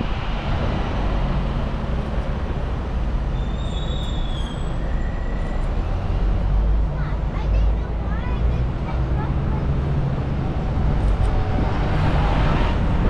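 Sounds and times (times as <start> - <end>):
bus engine and road rumble: 0.0 - 13.0
brief high-pitched squeals: 3.4 - 5.8.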